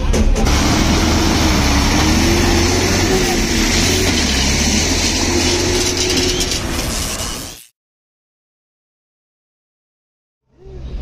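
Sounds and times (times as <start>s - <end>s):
road traffic rumble: 0.2s - 7.7s.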